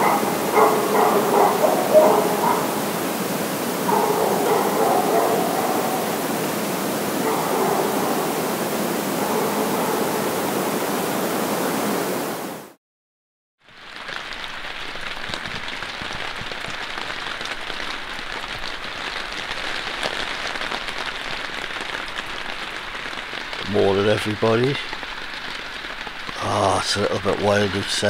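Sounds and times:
loud rushing noise: 0.0s - 12.7s
rain on a tarpaulin: 0.0s - 12.8s, 13.6s - 28.0s.

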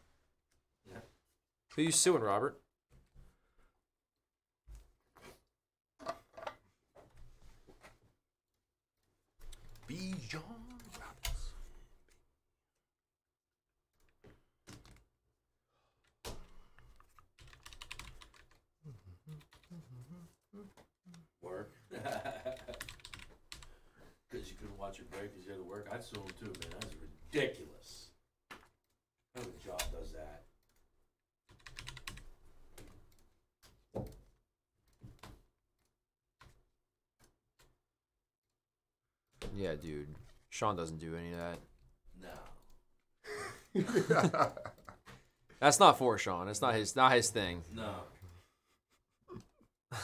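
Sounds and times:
typing on a computer keyboard: 14.0s - 15.1s, 16.2s - 18.6s, 19.4s - 19.7s, 22.4s - 23.8s, 25.8s - 27.1s, 31.5s - 33.3s.

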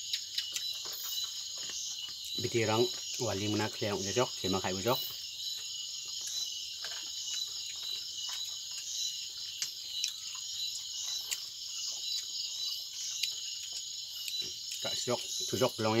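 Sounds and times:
night insects chorus: 0.0s - 16.0s.

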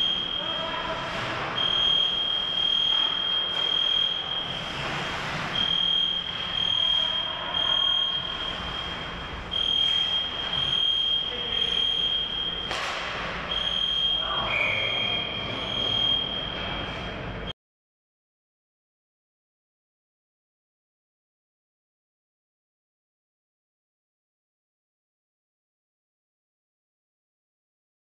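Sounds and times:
fire alarm beeping: 0.0s - 17.5s
ice skates scraping: 4.4s - 5.6s.

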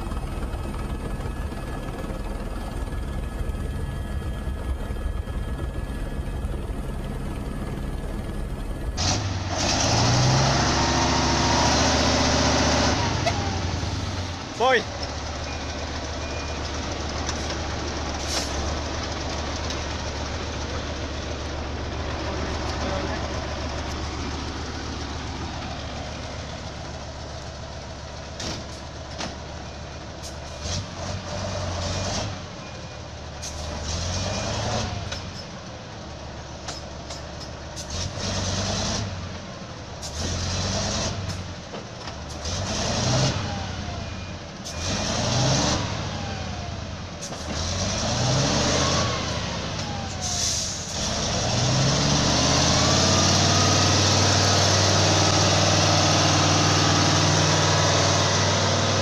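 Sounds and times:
truck diesel engine revving: 7.0s - 29.1s, 29.7s - 32.5s, 33.4s - 35.2s, 37.7s - 39.4s, 40.0s - 41.6s, 42.2s - 59.0s.

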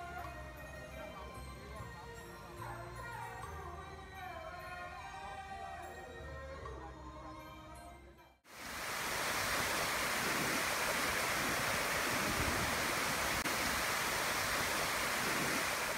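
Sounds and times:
music: 0.0s - 8.5s
waterfall cascading over rocks: 8.5s - 15.9s.

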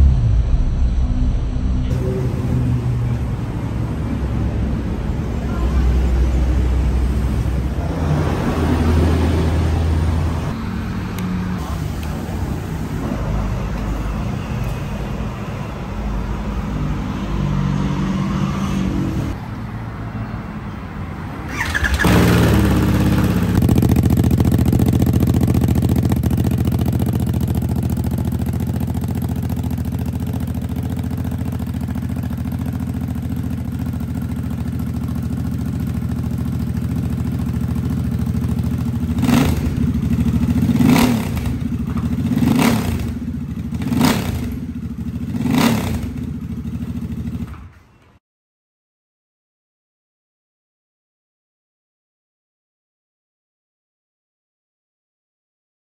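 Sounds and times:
motorcycle engine revving: 21.4s - 47.6s
motorcycle starter: 21.5s - 23.2s
motorcycle engine idling: 21.5s - 47.8s.

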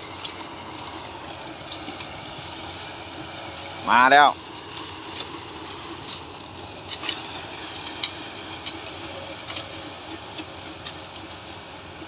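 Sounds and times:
harvester engine running: 0.0s - 12.0s
sharp light ticks and crackles: 4.4s - 11.8s.

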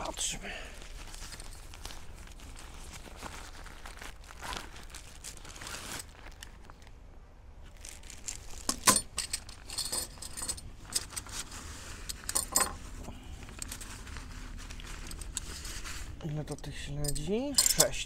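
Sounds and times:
metal tent pegs clinking: 8.6s - 12.9s, 14.9s - 18.0s.

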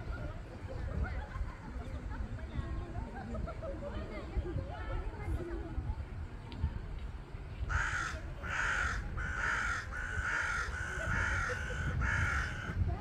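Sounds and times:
crow cawing: 7.7s - 12.8s.

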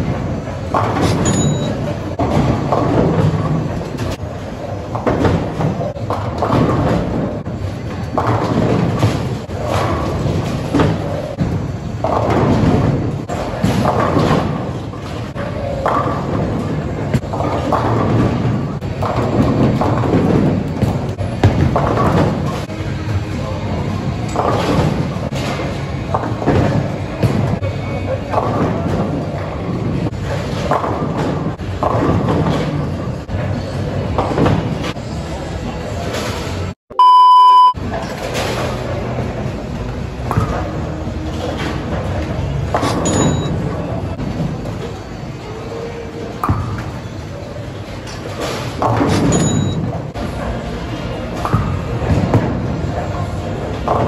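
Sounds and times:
bowling balls rolling on lanes: 0.0s - 36.8s, 37.8s - 54.0s
balls and pins knocking: 0.6s - 22.7s, 28.3s - 33.3s.

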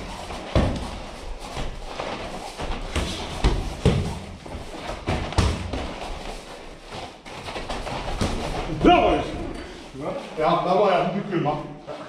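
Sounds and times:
bare feet stamping on mat: 0.3s - 8.8s.

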